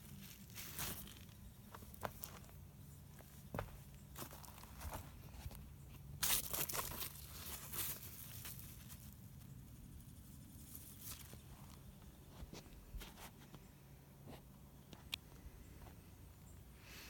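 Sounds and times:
leaves rustling and crackling: 0.0 - 1.4, 6.2 - 11.6.

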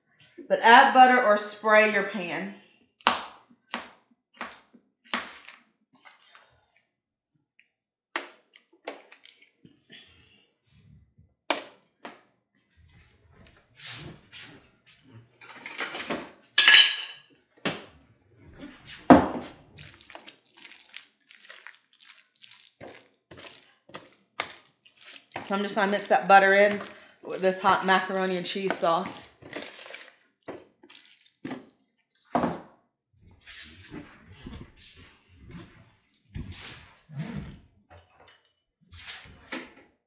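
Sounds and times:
wet squelching of noodles: 5.1 - 6.9, 18.4 - 32.3.

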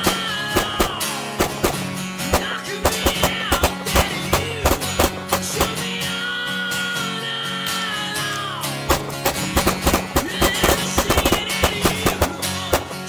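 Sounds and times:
pistol shots: 0.0 - 5.8, 8.9 - 13.0
background music: 0.0 - 13.0.

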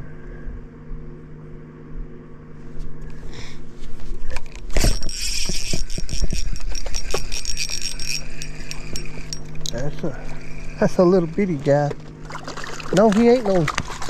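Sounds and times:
small motor humming: 0.0 - 14.0
fishing cast: 4.3 - 9.6
spinning reel cranked: 4.7 - 11.9.

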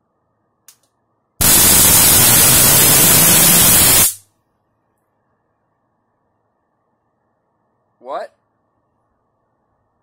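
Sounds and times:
high-voltage arc discharging: 1.4 - 4.2.

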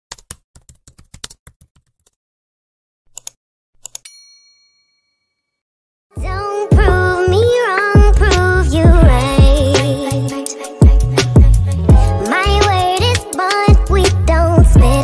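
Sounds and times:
keyboard typing clicks: 0.1 - 2.2, 3.1 - 4.1
notification bell ding: 4.0 - 5.5
music: 6.1 - 15.0.

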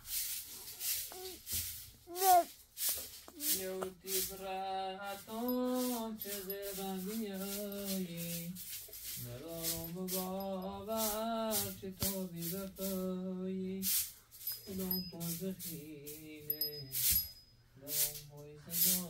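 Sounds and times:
rattling shaker beat: 0.0 - 19.0
person singing slow melody: 3.3 - 8.6, 9.2 - 14.0, 14.6 - 19.0.

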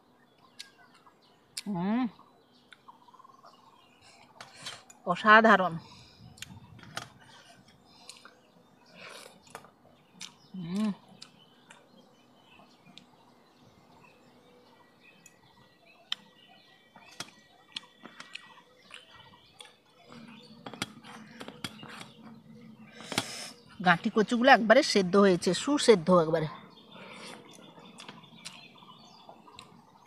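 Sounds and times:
faint birds chirping: 0.0 - 30.0
person chewing: 7.2 - 11.8, 17.1 - 22.2, 27.1 - 28.6.

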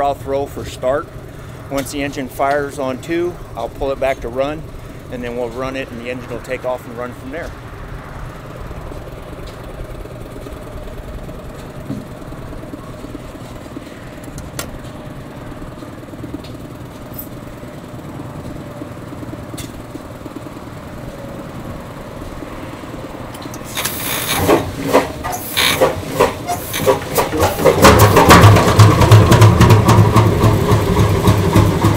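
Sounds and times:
steady low rumble: 0.0 - 25.2
engine turning over with hissing puffs: 0.0 - 31.9.

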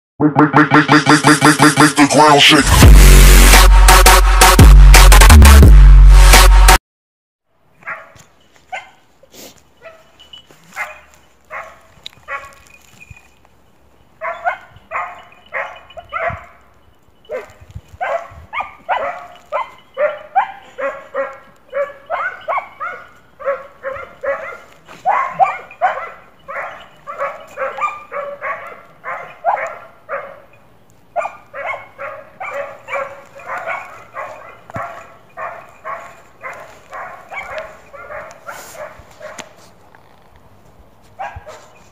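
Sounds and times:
hound barking: 7.8 - 9.1, 9.8 - 12.7, 14.2 - 39.6, 41.2 - 41.8.

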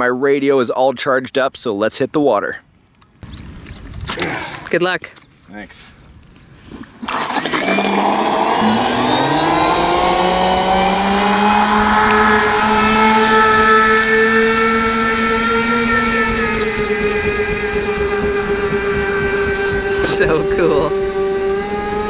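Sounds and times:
electric motor whining: 7.0 - 22.0.

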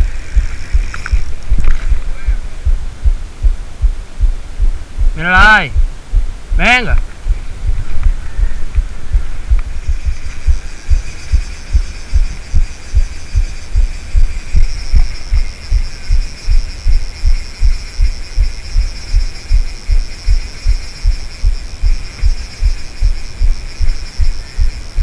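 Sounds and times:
dull low thumps: 0.0 - 25.0.

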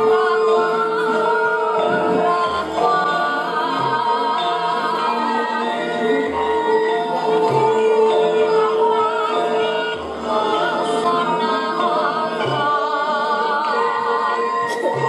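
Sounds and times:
woman singing ornamented line: 0.0 - 15.0.

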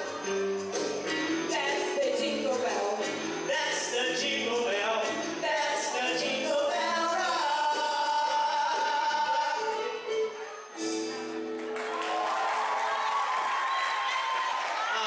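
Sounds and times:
backing music: 0.0 - 14.0
woman singing: 1.4 - 3.1
man singing: 1.5 - 10.3.

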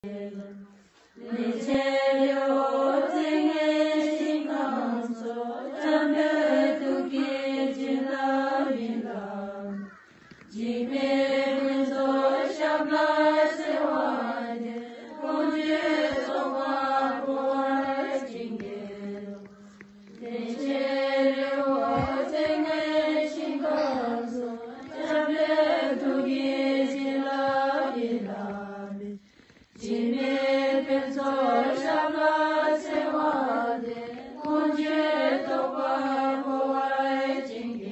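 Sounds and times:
voice chanting a mantra: 0.0 - 37.9.

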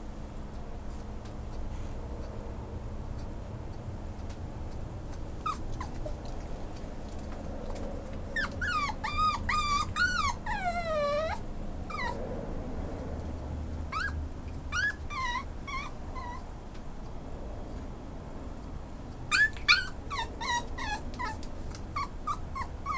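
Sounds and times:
puppy whimpering: 5.1 - 12.2, 12.8 - 16.5, 19.0 - 22.9.

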